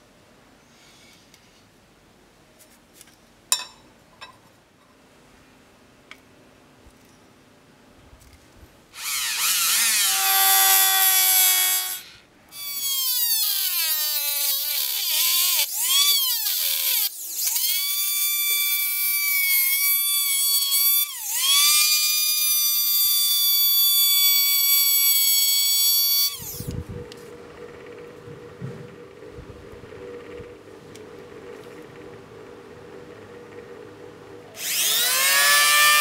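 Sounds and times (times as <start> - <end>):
rotary tool cutting sheet metal: 9.0 - 26.8, 34.6 - 36.0.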